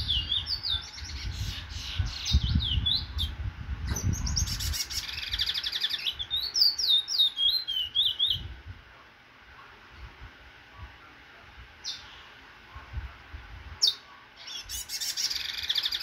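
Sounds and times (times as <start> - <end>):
finch singing: 0.0 - 8.5, 11.8 - 12.4, 13.8 - 16.0.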